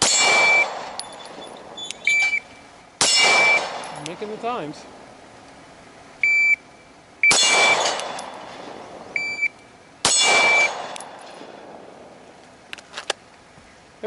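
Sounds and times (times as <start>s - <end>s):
pistol shot: 0.0s - 2.4s, 3.0s - 4.1s, 7.3s - 9.1s, 10.0s - 11.8s
steel target ringing: 0.0s - 4.6s, 7.2s - 9.4s, 10.0s - 11.6s
shot timer beep: 6.2s - 6.6s, 9.2s - 9.6s, 10.4s - 10.8s.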